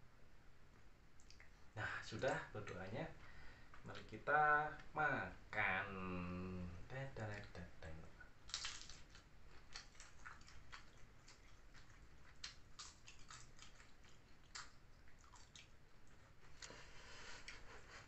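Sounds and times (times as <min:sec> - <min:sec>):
crunching of crisp cracker: 0:08.4 - 0:16.8.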